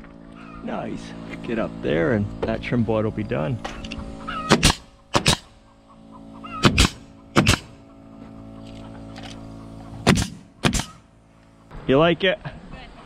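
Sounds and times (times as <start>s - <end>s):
nail gun firing: 4.5s - 5.6s, 6.6s - 7.8s, 10.0s - 11.0s.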